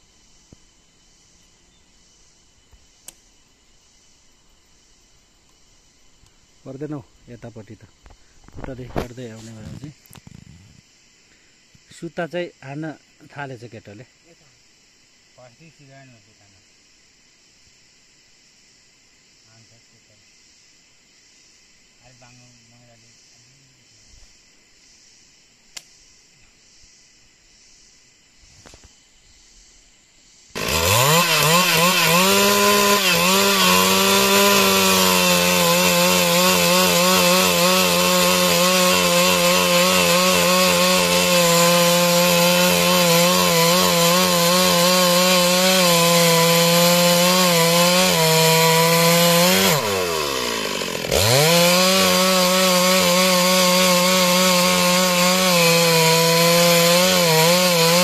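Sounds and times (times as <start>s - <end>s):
chainsaw cutting log: 30.5s - 58.0s.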